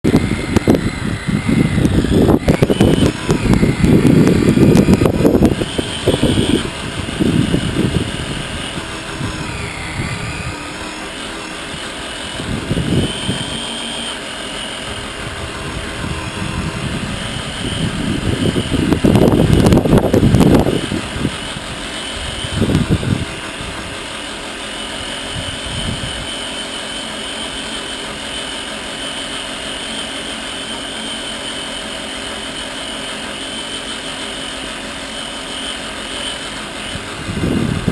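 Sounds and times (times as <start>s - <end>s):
truck rumbling and rattling over bumps: 0.0s - 30.8s, 32.1s - 37.9s
rc truck motor whining: 0.0s - 37.9s.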